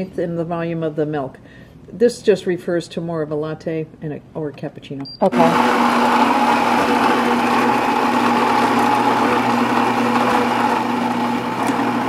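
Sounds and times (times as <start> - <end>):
coffee grinder grinding beans: 5.4 - 12.0.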